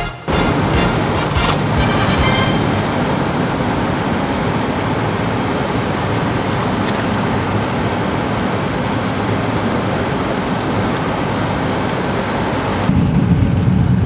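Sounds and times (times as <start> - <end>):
airliner cabin noise: 0.0 - 14.0.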